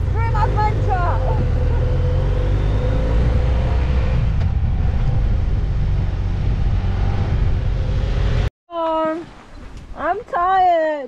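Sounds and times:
motorcycle engine rumble: 0.0 - 8.5
wind rushing past: 1.4 - 8.5.

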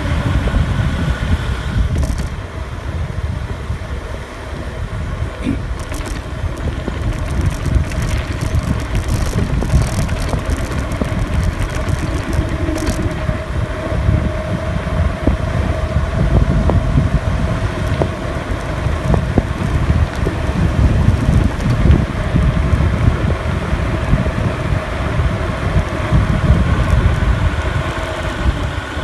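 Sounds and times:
wind buffeting a microphone: 0.0 - 29.0
tyre noise on asphalt: 1.6 - 3.0, 4.8 - 29.0
faint steady whine: 1.6 - 29.0.

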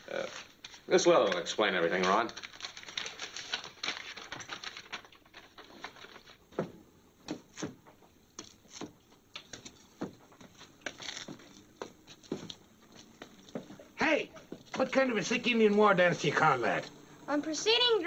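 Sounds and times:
footsteps on stone: 9.5 - 14.9.

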